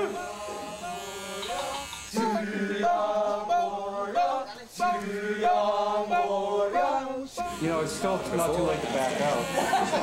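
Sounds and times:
chorus of men chanting: 2.1s - 8.3s.

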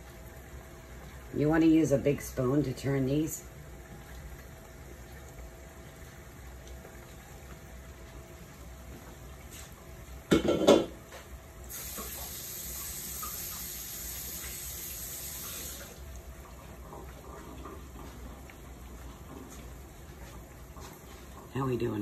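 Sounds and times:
dishes clattering: 10.3s - 11.0s
meatballs sizzling in oil: 11.6s - 16.3s
kitchen tap running: 11.6s - 22.0s.

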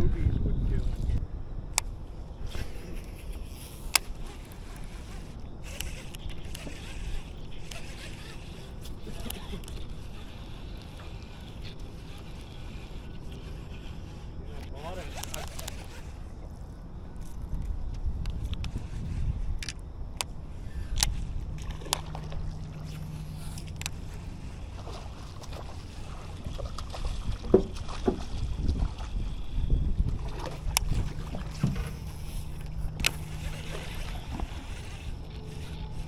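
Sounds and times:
low steady hum: 0.0s - 36.0s
wind and water rumble on microphone: 0.0s - 36.0s
sharp clicks: 3.6s - 16.0s, 32.1s - 36.0s.

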